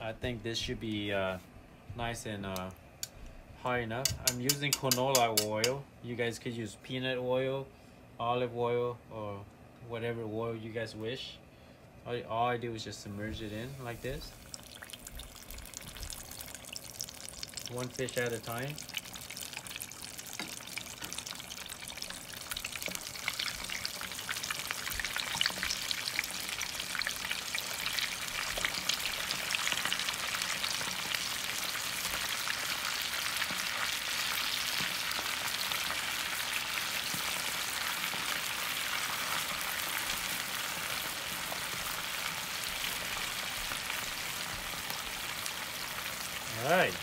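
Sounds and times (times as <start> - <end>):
oil sizzling and crackling: 4.0 - 5.8, 13.3 - 47.0.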